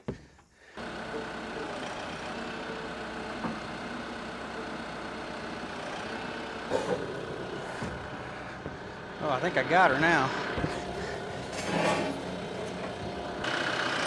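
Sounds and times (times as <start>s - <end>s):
tractor diesel engine idling: 0.7s - 14.0s.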